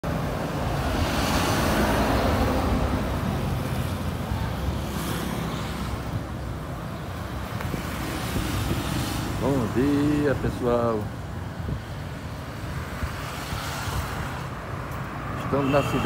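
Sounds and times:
low rumble of road traffic: 0.0 - 16.0
car passing by: 0.1 - 6.3, 12.7 - 16.0.

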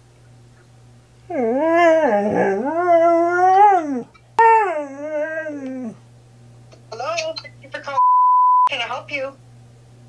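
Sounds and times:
husky howling: 1.3 - 6.0.

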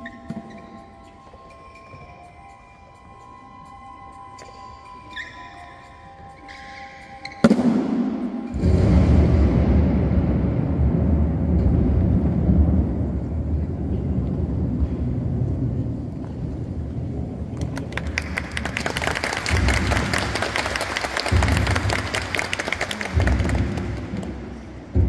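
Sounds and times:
low steady rumble: 8.6 - 17.6
audience applause: 17.6 - 24.4.

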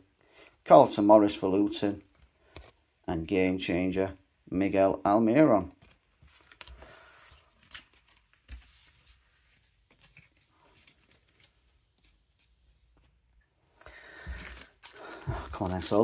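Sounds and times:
cards rustling: 5.8 - 13.2, 13.8 - 16.0.

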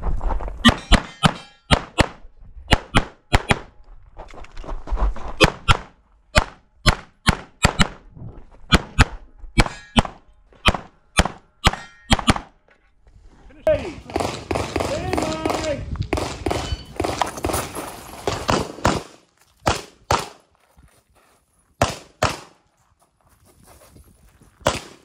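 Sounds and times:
pistol shots: 14.0 - 20.4, 21.8 - 22.6, 24.6 - 25.0.

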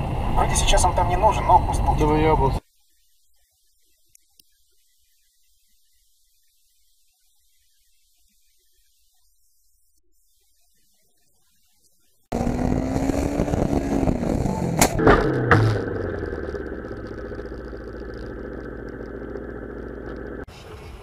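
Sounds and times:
car engine and road noise: 0.0 - 2.5, 12.3 - 21.0.

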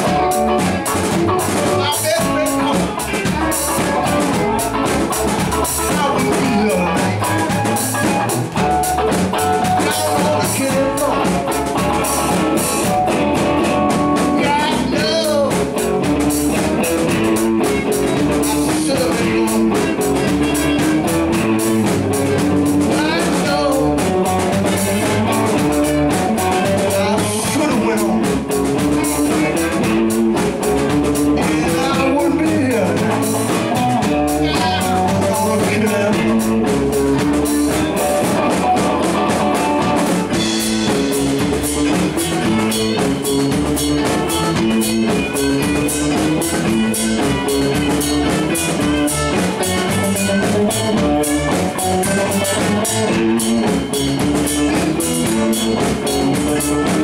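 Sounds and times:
live blues band playing: 0.0 - 57.0.

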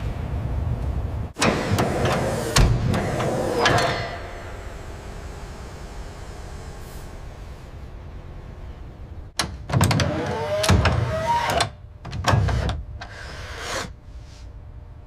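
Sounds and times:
low steady hum: 0.0 - 15.0
motorized mechanism whirring and clunking: 1.4 - 7.2, 9.3 - 14.0.

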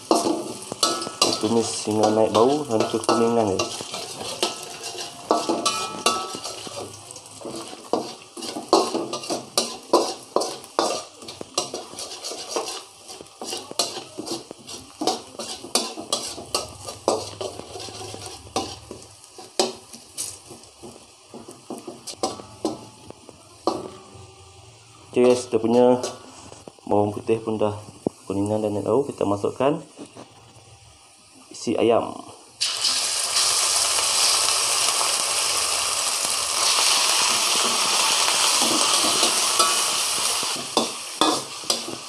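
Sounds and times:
metal utensil scraping a wok: 0.0 - 20.7, 21.4 - 24.1, 25.2 - 26.7, 36.5 - 42.0
garlic sizzling in oil: 0.0 - 42.0.

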